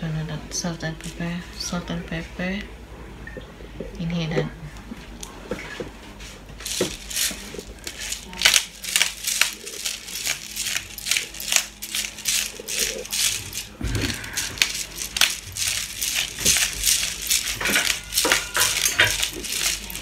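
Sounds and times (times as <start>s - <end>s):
spice grinder crunching: 6.5s - 20.0s.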